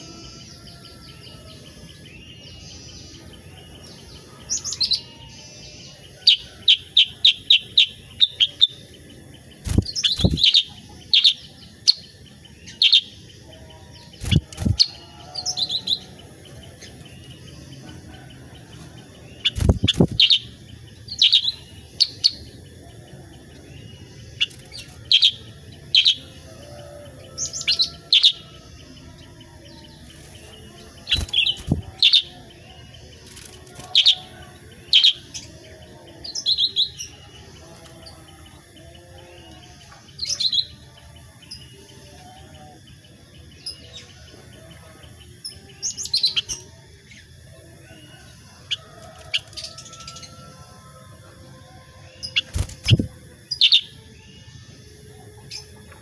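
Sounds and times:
bird chirping: 0.0 - 50.7, 51.6 - 56.0
wing flapping thumps: 14.2 - 14.8, 19.5 - 20.3, 31.2 - 31.9, 52.5 - 53.1.

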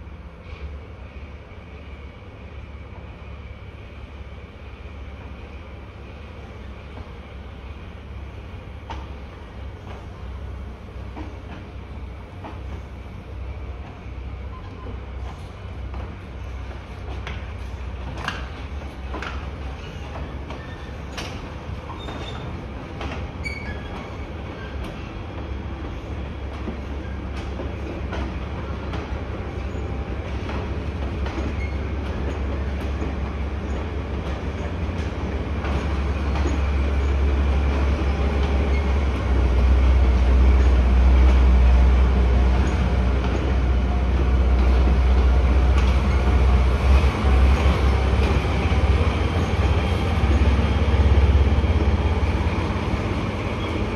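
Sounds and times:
train rolling low rumble: 0.0 - 53.9
rail clicks: 5.0 - 53.9
thin wheel squeal: 23.4 - 24.8.

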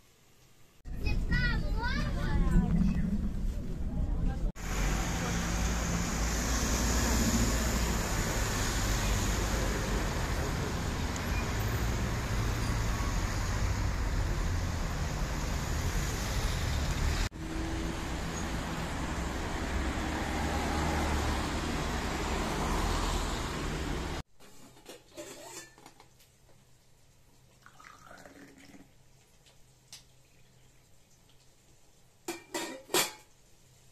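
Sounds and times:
cars passing on wet street: 4.5 - 24.2.

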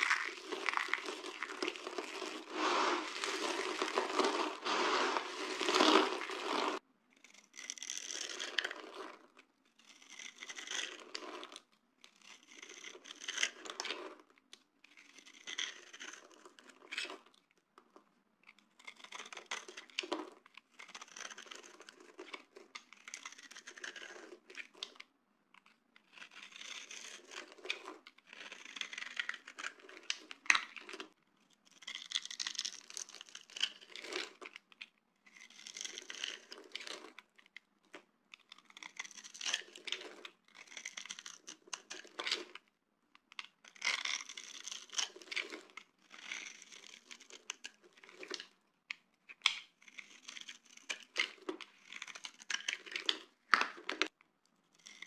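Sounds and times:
knife blade scraping soap: 0.0 - 17.3, 18.4 - 31.0, 31.6 - 37.6, 38.3 - 42.7, 43.3 - 48.5, 49.3 - 54.1, 54.7 - 55.0.

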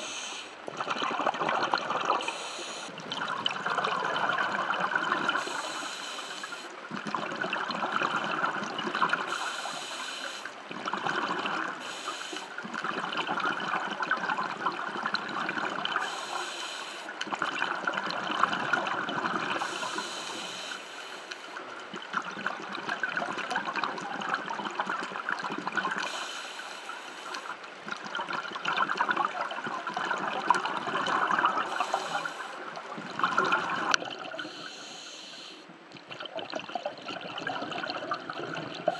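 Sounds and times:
diver breathing through regulator: 0.0 - 0.6, 2.2 - 3.0, 5.4 - 6.7, 9.3 - 10.6, 11.8 - 12.5, 16.0 - 17.1, 19.6 - 21.5, 26.1 - 27.5, 31.6 - 32.6, 34.4 - 35.7
underwater bubbles crackling: 0.0 - 34.8, 35.7 - 38.9.

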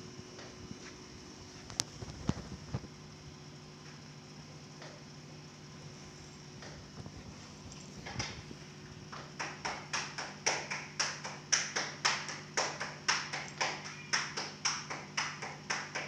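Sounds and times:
fast sharp taps: 9.1 - 16.0.

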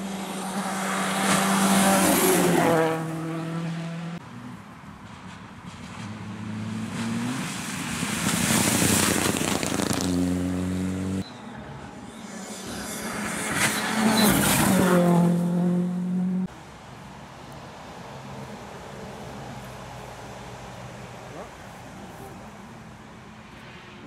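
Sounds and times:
rally cars passing at full throttle: 0.0 - 16.8.

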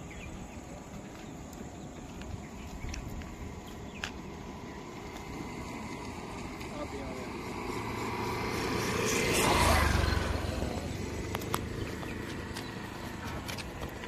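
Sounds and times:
vehicle passing by: 3.5 - 14.0.

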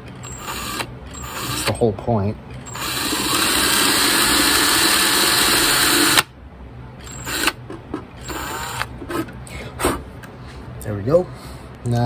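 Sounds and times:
cordless drill boring wood: 0.2 - 1.7, 2.7 - 6.3, 7.1 - 7.6, 8.2 - 8.9.

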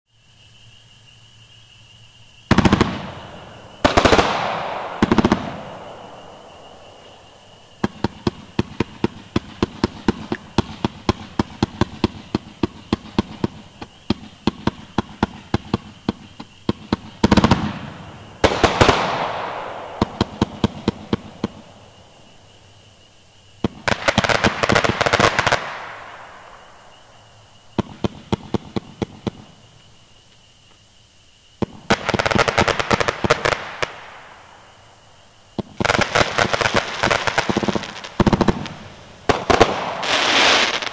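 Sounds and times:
loud firework bangs: 2.5 - 21.9, 23.6 - 26.6, 35.6 - 40.9
firework crackling: 2.5 - 22.1, 23.6 - 26.9, 31.6 - 34.7, 35.6 - 40.9.

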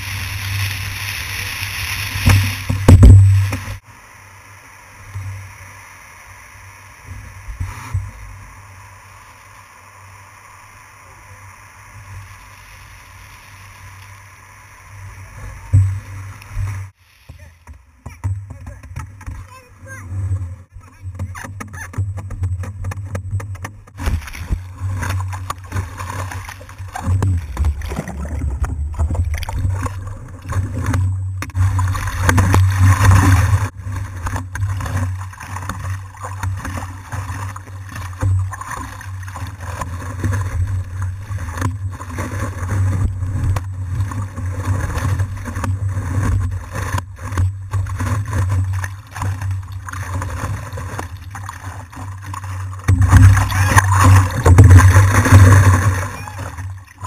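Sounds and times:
water splashing against paddleboard: 0.0 - 3.8, 10.4 - 57.0
water knocking on board: 2.2 - 3.8, 20.8 - 56.8.

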